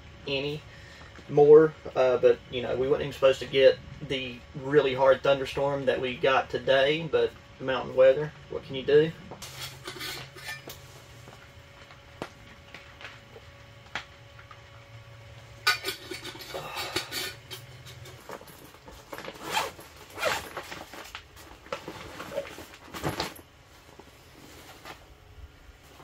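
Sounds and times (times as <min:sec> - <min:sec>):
zipper and nylon rustling: 0:18.1 - 0:25.2.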